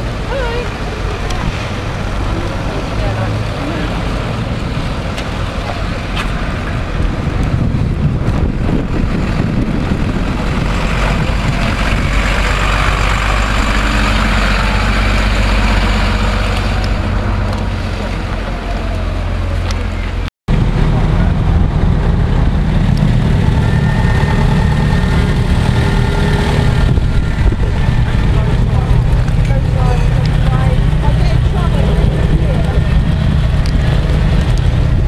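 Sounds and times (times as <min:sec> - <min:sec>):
fire engine diesel engine running: 0:00.0 - 0:35.0
police car driving past: 0:09.2 - 0:35.0.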